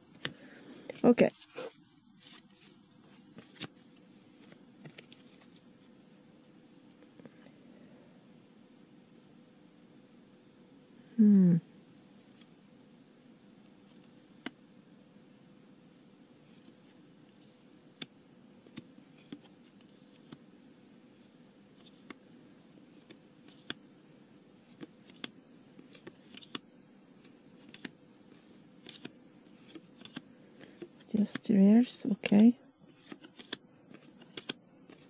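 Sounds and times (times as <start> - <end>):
faint steady hum: 0.0 - 35.0
paper cards clicking and snapping: 3.4 - 3.7, 4.4 - 5.6, 22.9 - 23.8, 24.6 - 26.6, 27.2 - 27.9, 28.8 - 31.1, 32.1 - 35.0.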